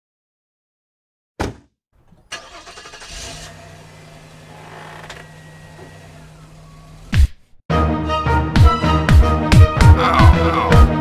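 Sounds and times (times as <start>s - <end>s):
engine starting and idling: 2.0s - 7.2s.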